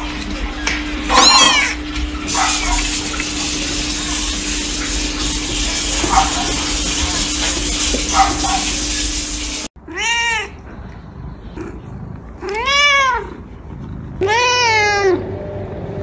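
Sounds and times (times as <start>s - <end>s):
cat meowing: 1.1s - 1.8s, 9.8s - 10.6s, 12.4s - 13.4s, 14.2s - 15.2s.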